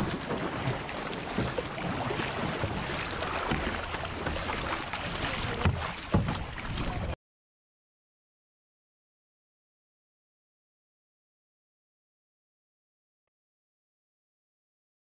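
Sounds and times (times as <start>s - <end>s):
paddle splashes: 0.0s - 7.2s
water rushing along kayak hull: 0.0s - 7.2s.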